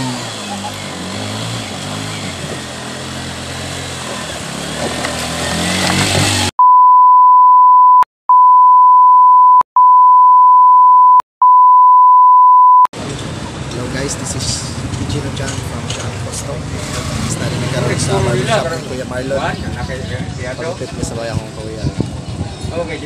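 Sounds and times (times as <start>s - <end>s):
loud steady beep tone: 6.6s - 12.9s.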